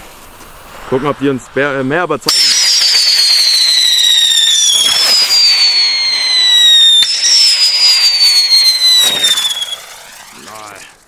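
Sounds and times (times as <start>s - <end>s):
firework crack: 0.0s - 11.0s
firework whistling falling pitch: 2.2s - 11.0s.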